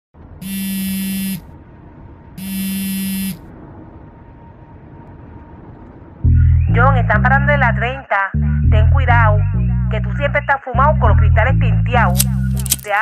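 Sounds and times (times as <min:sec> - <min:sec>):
mobile phone buzzing: 0:00.4 - 0:01.4, 0:02.4 - 0:03.4.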